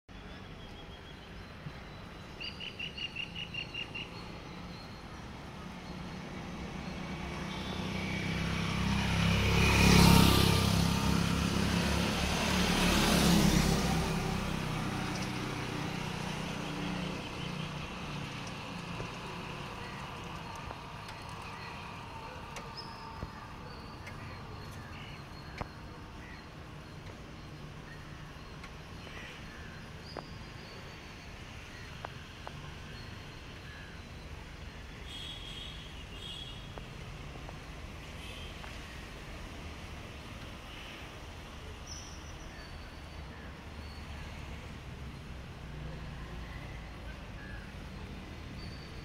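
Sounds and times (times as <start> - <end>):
bird chirping: 0.2 - 5.3
motor vehicles passing: 5.3 - 30.6.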